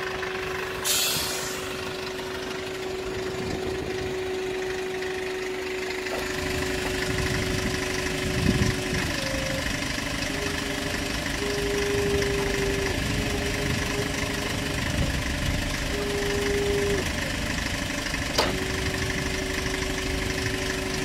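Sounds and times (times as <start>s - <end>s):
diesel engine idling: 0.0s - 21.0s
steady whine: 0.0s - 21.0s.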